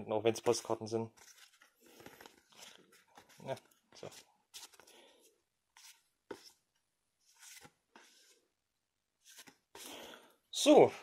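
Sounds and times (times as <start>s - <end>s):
paper postcards being shuffled: 0.4s - 5.0s, 7.3s - 8.4s, 9.2s - 9.9s.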